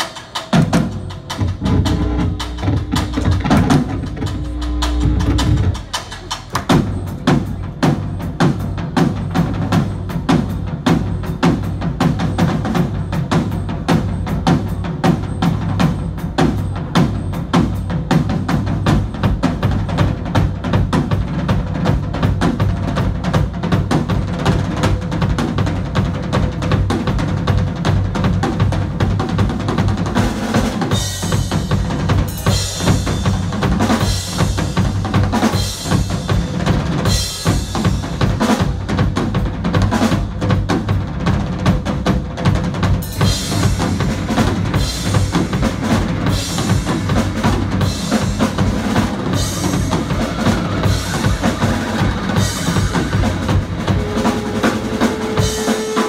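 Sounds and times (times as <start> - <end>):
cymbals crashing: 0.0 - 7.6, 44.9 - 56.0
fast drumming on a kit: 0.0 - 56.0
bass guitar: 0.6 - 11.6, 31.3 - 55.6.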